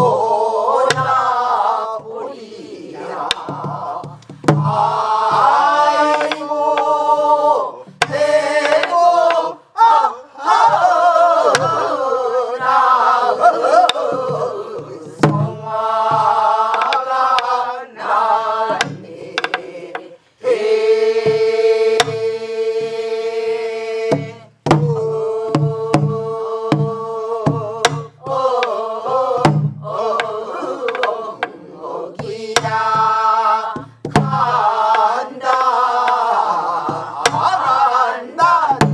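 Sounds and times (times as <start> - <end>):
group singing folk song: 0.0 - 38.9
barrel drums struck: 3.2 - 6.9, 29.4 - 30.3.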